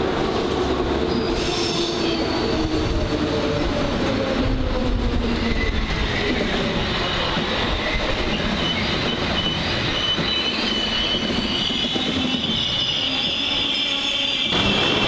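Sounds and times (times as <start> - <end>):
rumble of passing railcars: 0.0 - 15.0
steel wheels squealing: 5.4 - 15.0.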